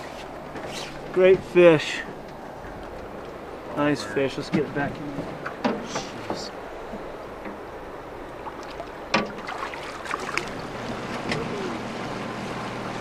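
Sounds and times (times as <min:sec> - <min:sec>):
river water washing around boat: 0:00.0 - 0:13.0
knocks and splashes: 0:08.3 - 0:12.2.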